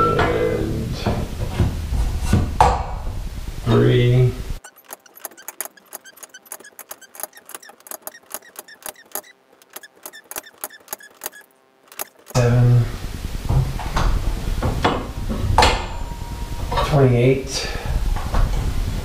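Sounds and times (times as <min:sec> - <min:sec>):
metal winding bars clicking: 0:04.6 - 0:12.4.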